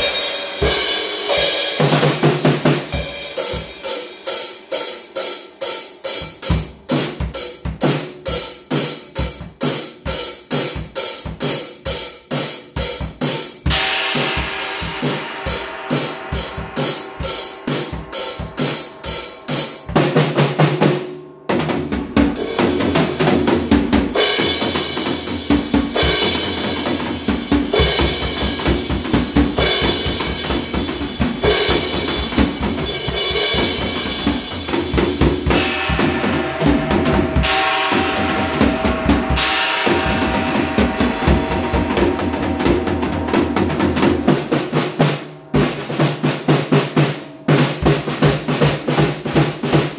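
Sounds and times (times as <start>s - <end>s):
drum kit beat: 0.0s - 49.9s
cymbal crash: 13.6s - 20.2s, 22.3s - 45.4s
low drum fill: 13.7s - 49.9s.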